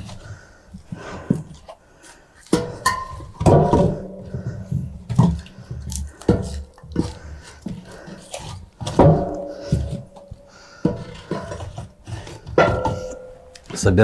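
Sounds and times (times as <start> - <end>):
firewood knocking into stove: 2.5 - 5.4, 8.8 - 10.2, 12.4 - 13.3
metal stove ringing: 2.6 - 4.3, 12.6 - 13.7.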